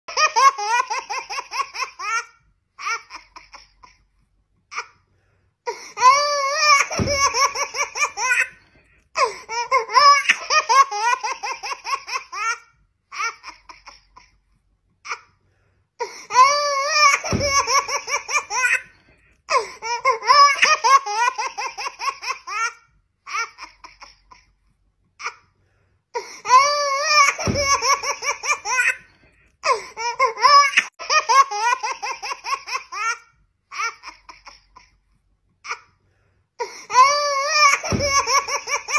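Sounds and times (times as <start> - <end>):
baby laughing: 0.1 - 4.1, 5.7 - 14.4, 16.0 - 24.5, 26.2 - 35.0, 36.6 - 38.9.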